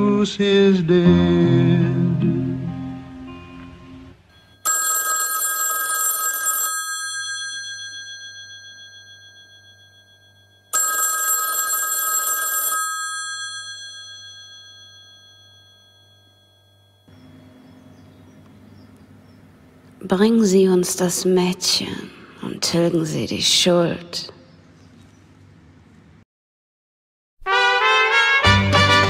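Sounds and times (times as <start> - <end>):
telephone bell ringing: 4.3 - 17.2.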